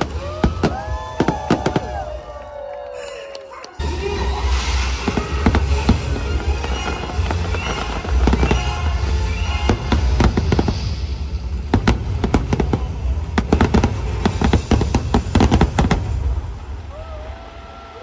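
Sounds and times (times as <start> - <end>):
fireworks sharp cracks: 0.0 - 2.3, 3.8 - 17.0
fireworks rumble: 0.0 - 2.9, 3.7 - 18.0
music soundtrack: 3.8 - 16.9.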